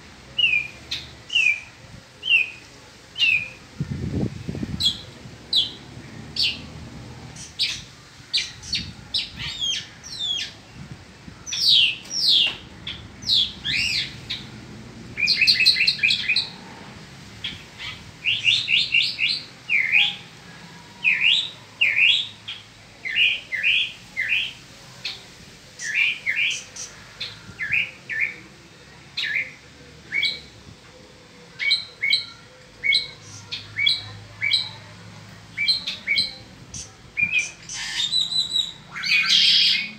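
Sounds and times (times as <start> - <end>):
mockingbird singing: 4.5 - 10.6, 11.4 - 14.6, 15.2 - 16.6, 31.5 - 34.8, 35.5 - 39.9.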